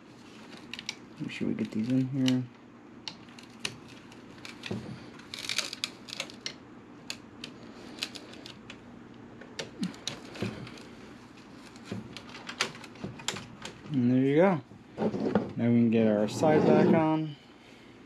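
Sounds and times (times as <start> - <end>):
cables rustling: 0.0 - 8.8, 9.4 - 14.0.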